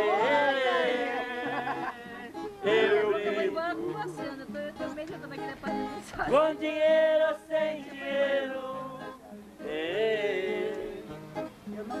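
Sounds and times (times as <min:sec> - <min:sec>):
plucked acoustic guitar: 0:00.0 - 0:12.0
man singing slow song: 0:06.3 - 0:12.0.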